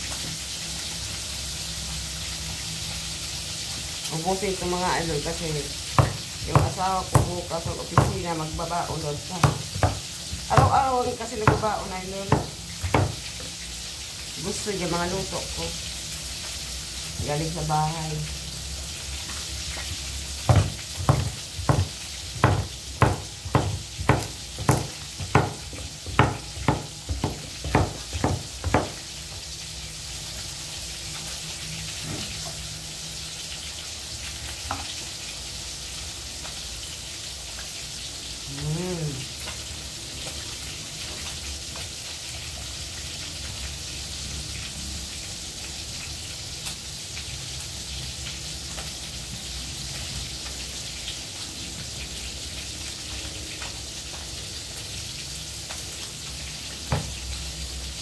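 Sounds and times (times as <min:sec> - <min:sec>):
oil sizzling in a wok: 0:00.0 - 0:58.0
knife chopping on wooden board: 0:06.0 - 0:13.5, 0:20.5 - 0:29.1.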